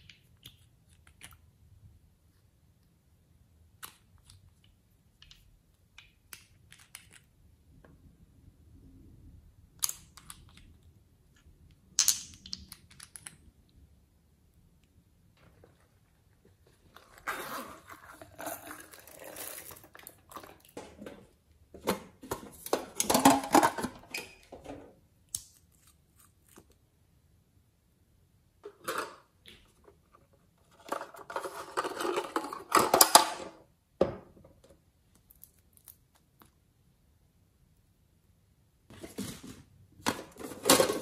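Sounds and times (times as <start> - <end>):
plastic containers clicking and scraping: 15.4 - 25.0, 28.6 - 33.6, 38.9 - 41.0.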